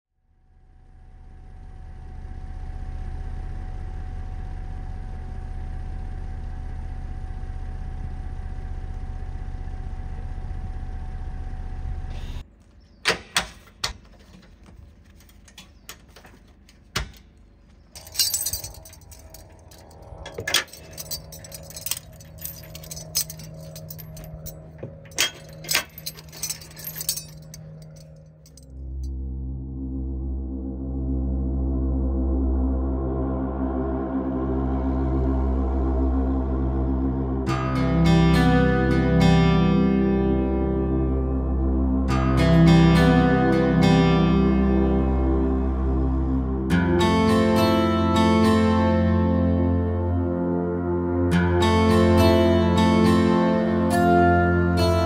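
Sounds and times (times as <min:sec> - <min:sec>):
steady low rumble: 0:16.5 - 0:37.6
tow hitch chain clinking: 0:18.0 - 0:28.7.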